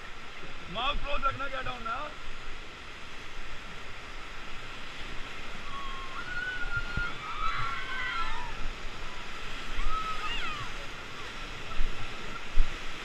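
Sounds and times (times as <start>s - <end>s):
river rapids rushing: 0.0s - 13.0s
people crying out: 5.6s - 8.8s, 9.7s - 11.3s.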